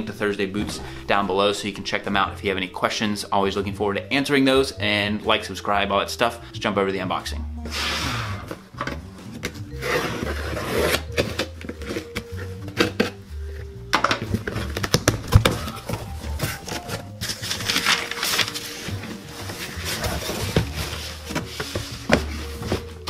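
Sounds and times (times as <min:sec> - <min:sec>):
background music with bass: 0:00.0 - 0:23.0
cardboard box being opened: 0:14.4 - 0:23.0
packing paper rustling: 0:14.4 - 0:23.0.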